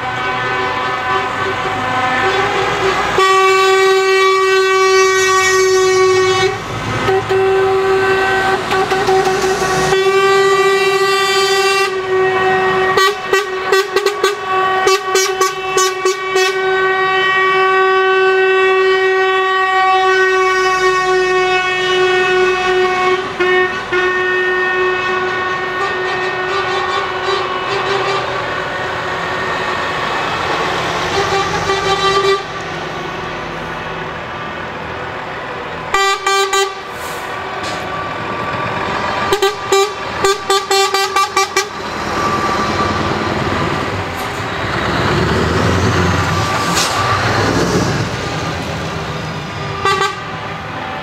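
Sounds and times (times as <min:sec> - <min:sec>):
truck air horn blasts: 0:00.0 - 0:29.6, 0:31.0 - 0:32.7, 0:35.9 - 0:38.0, 0:39.1 - 0:48.6, 0:49.4 - 0:50.6
trucks rolling past: 0:00.0 - 0:51.0
horn short toots: 0:00.1 - 0:28.4, 0:49.6 - 0:50.4.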